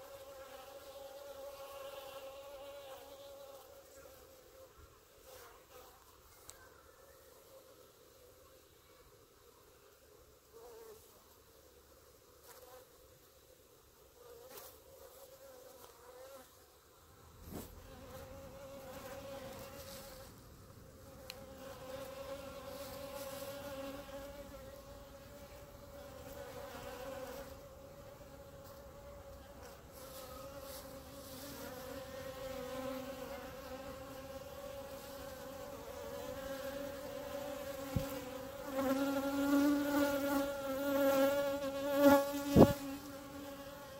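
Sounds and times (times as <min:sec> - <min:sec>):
honeybees buzzing: 0:17.5 - 0:43.9.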